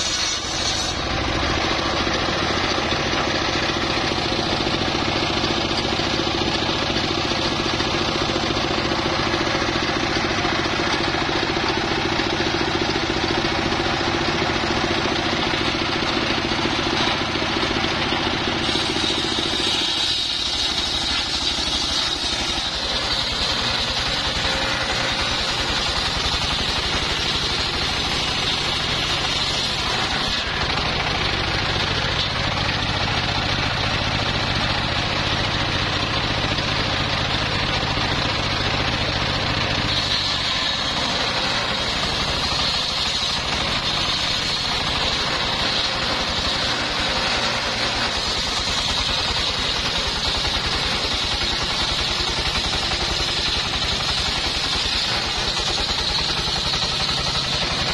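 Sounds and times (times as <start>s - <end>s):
circular saw cutting log: 0.0s - 57.9s
stationary engine running: 0.0s - 57.9s.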